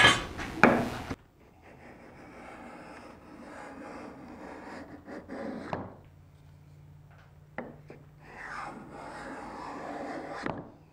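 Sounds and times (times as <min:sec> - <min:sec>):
scraper rasping on wood: 0:01.6 - 0:05.8.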